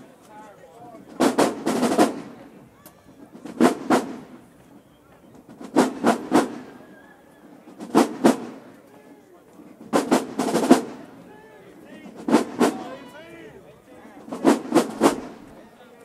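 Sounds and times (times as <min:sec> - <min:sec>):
crowd voices: 0:00.0 - 0:16.0
marching drumline hits: 0:00.9 - 0:04.4, 0:05.4 - 0:08.7, 0:09.8 - 0:11.2, 0:11.9 - 0:13.1, 0:14.1 - 0:15.5.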